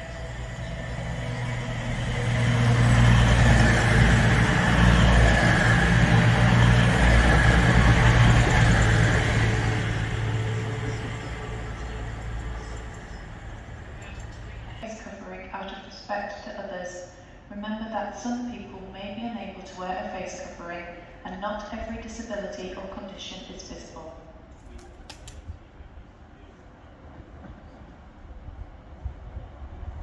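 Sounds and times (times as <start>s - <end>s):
wheels rushing on rail: 0.0s - 14.8s, 25.3s - 30.0s
diesel train engines droning: 0.0s - 24.5s.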